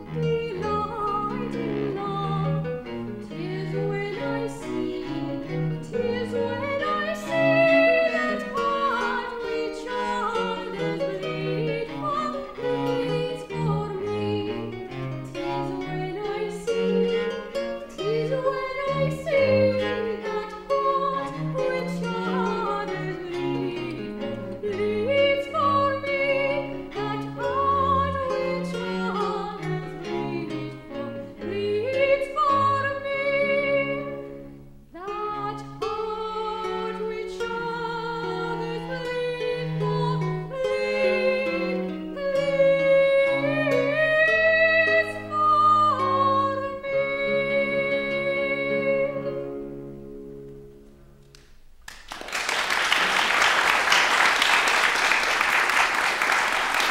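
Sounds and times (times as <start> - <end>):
woman singing classical song: 0.0 - 50.6
cello: 0.0 - 51.5
classical guitar: 0.0 - 52.1
applause: 51.8 - 56.9.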